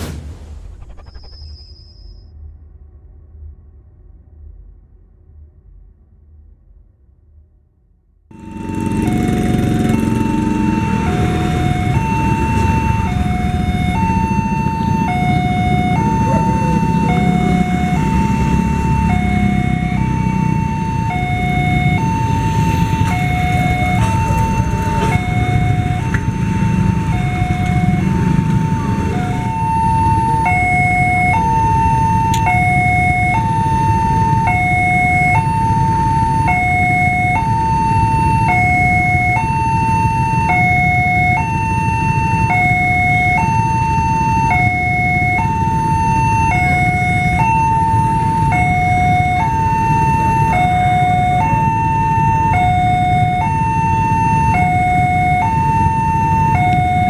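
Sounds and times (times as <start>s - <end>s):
motorbikes idling: 8.3s - 35.8s
level crossing two-tone alarm: 8.3s - 57.0s.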